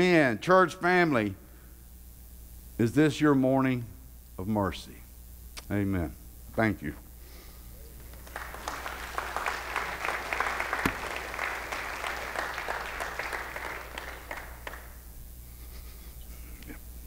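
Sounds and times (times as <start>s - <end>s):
congregation applauding: 7.8s - 15.2s.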